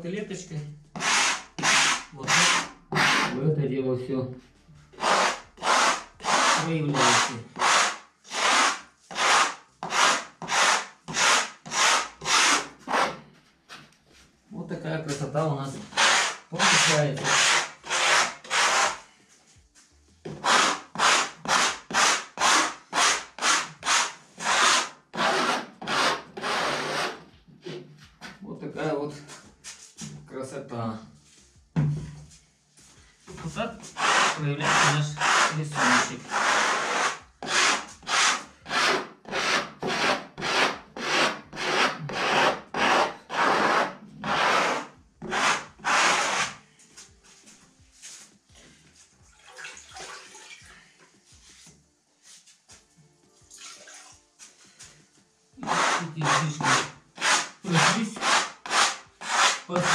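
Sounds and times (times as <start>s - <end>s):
plastic spatula scraping plaster: 0.9s - 3.4s, 5.0s - 13.8s, 15.1s - 19.0s, 20.3s - 27.8s, 33.4s - 46.6s, 55.6s - 59.9s.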